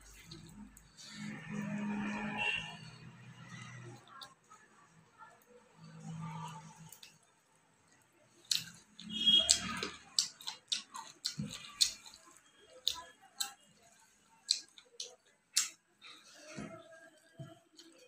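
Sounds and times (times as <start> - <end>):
wet chewing: 7.9 - 18.0
lip-smacks: 14.5 - 15.8.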